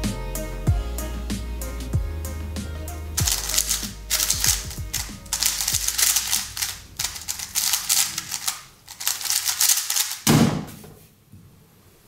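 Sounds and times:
puzzle cube clicking: 3.2 - 10.3.

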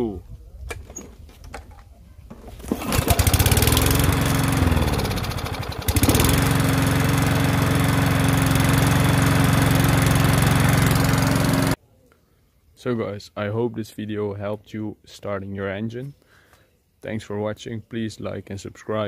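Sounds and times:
small lawnmower engine running: 2.6 - 11.8.

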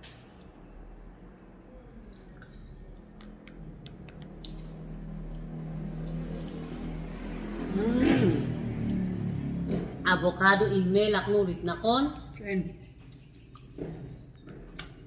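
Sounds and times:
chewing: 2.1 - 6.8, 12.3 - 15.0
fork clicking on containers: 3.1 - 5.4.

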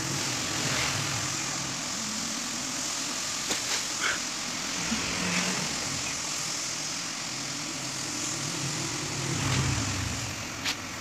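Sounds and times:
constant hiss: 0.0 - 11.0.

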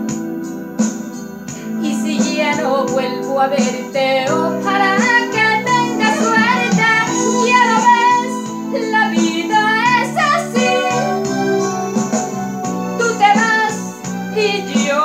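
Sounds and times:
instrumental backing track: 0.0 - 15.0
woman singing a ballad: 1.5 - 11.5, 12.9 - 15.0.

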